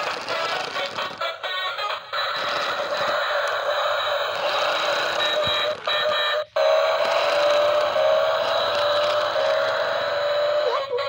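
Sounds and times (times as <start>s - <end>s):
toy car electric motor whining: 0.0s - 11.0s.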